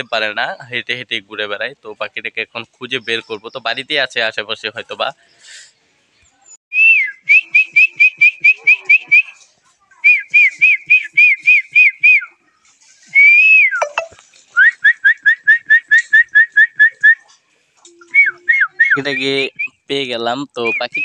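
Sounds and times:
person whistling short high notes: 13.1 - 17.2, 18.0 - 19.8.

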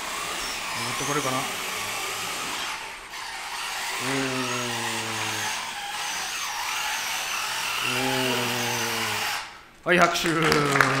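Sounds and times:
robot track drive whirring: 0.0 - 9.5
low droning motor tone: 4.0 - 5.4, 7.9 - 9.2.

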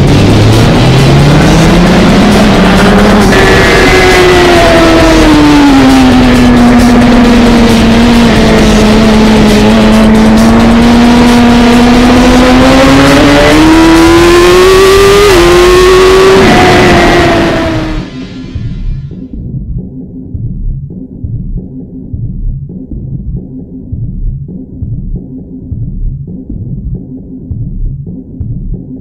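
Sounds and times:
motorcycle engine revving: 0.0 - 19.2
rushing wind noise: 15.4 - 18.8.

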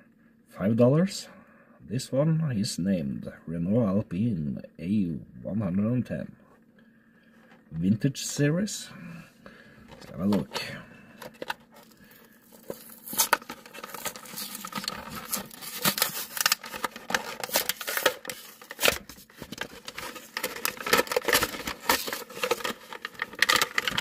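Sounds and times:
plastic packaging crinkling: 11.2 - 24.0.

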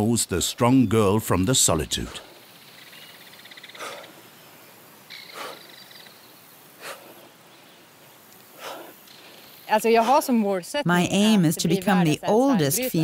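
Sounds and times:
woman breathing out hard: 5.2 - 5.8.

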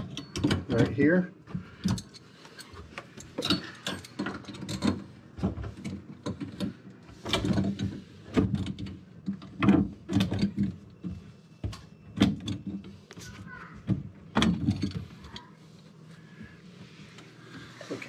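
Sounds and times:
tool clicking and scraping plumbing: 0.0 - 13.4.

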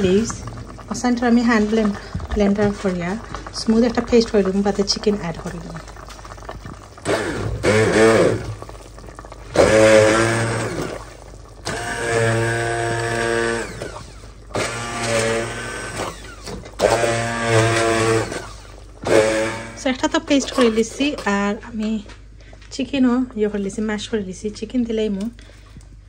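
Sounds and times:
stick blender whirring: 7.0 - 21.3.

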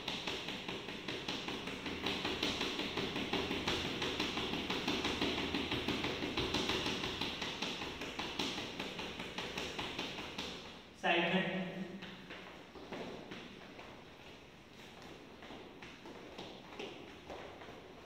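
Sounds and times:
sneakers tapping on tiled floor: 11.9 - 18.0.

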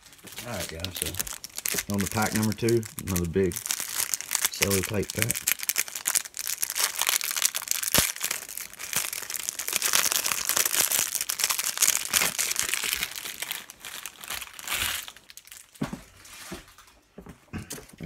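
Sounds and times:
cellophane wrapper crinkling: 0.0 - 15.8.

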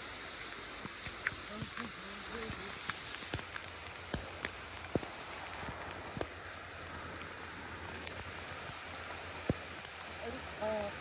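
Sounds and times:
fast-flowing stream: 0.0 - 11.0
heavy rain: 0.0 - 11.0.

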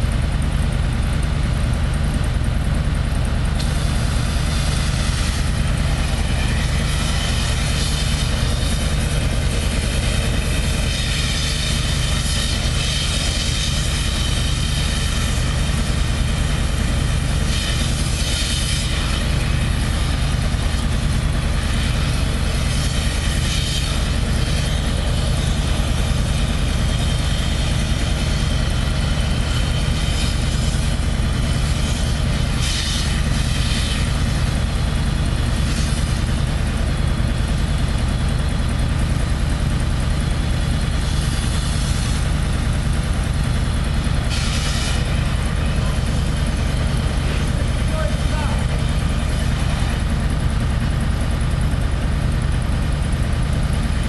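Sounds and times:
diesel engine idling: 0.0 - 54.0
bursts of hissing: 43.7 - 48.8.

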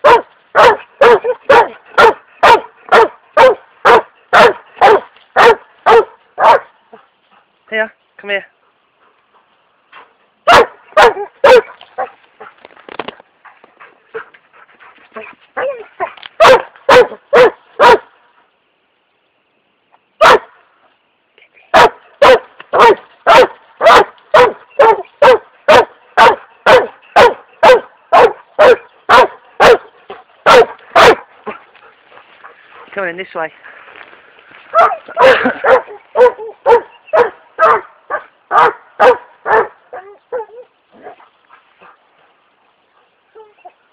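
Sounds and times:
dog barking: 0.0 - 6.8, 10.5 - 12.2, 15.6 - 18.1, 20.2 - 20.5, 21.7 - 31.6, 34.7 - 41.2.

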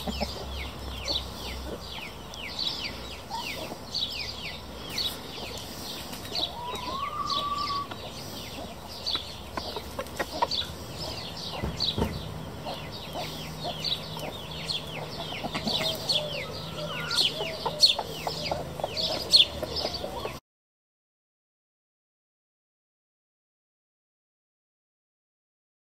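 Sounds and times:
chickens calling: 0.0 - 20.4.

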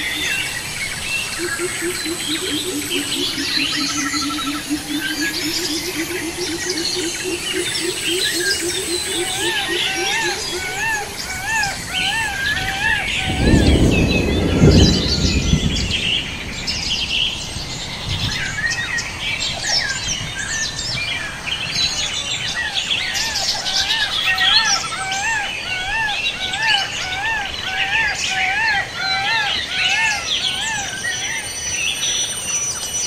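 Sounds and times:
birds chirping and twittering: 0.0 - 33.0
loud low rumble: 12.3 - 18.4.

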